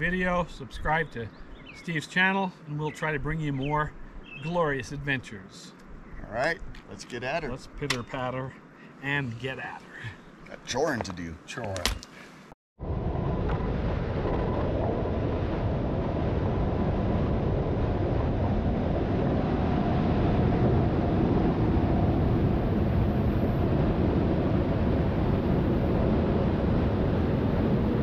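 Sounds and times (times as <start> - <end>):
steady rushing noise: 12.8 - 28.0.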